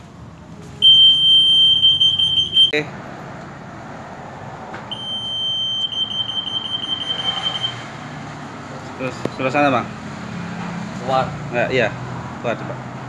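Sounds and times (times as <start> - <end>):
anti-theft gate alarm beeping: 0.8 - 2.8, 4.9 - 7.9.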